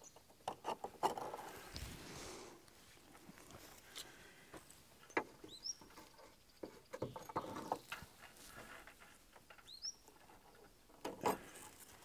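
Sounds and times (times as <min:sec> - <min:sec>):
mesh rustling against wood: 0:00.3 - 0:12.0
bird chirp: 0:05.4 - 0:08.0, 0:09.6 - 0:10.1.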